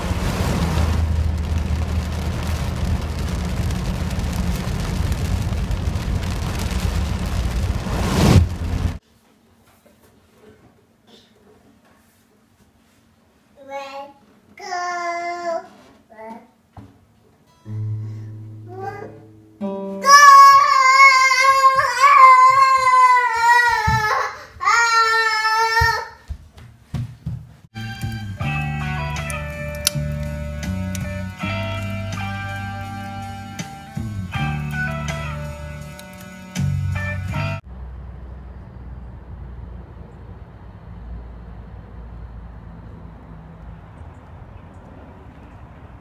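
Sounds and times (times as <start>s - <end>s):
car road and engine rumble: 0.0s - 9.0s, 27.7s - 46.0s
rain and tyre spray hiss: 0.0s - 9.0s, 27.8s - 37.6s
acoustic guitar strings plucked: 17.5s - 21.0s
child singing a high note: 18.1s - 26.1s.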